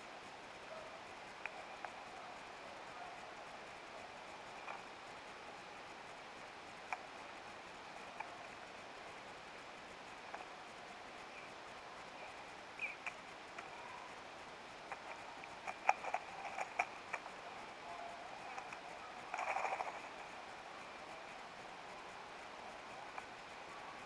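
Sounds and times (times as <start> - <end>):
rustling flurry: 18.4 - 20.6.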